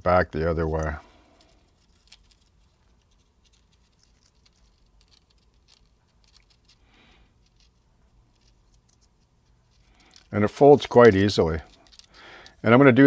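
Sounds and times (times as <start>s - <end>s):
soft rub: 0.7s - 12.1s
plastic strip crinkling: 0.8s - 12.6s.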